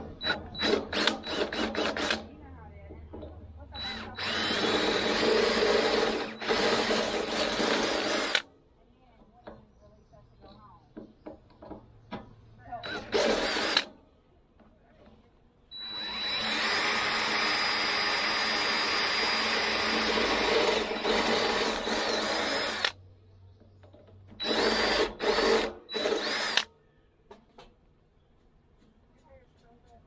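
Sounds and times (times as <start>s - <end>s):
cordless drill boring into steel: 0.2s - 2.2s, 3.8s - 8.4s, 12.8s - 13.9s, 15.7s - 23.0s, 24.4s - 26.7s.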